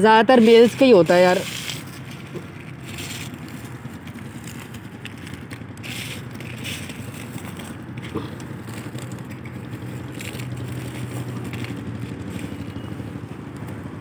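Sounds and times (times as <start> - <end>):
engine hum: 0.0 - 14.0
biscuits crunching: 1.1 - 13.0.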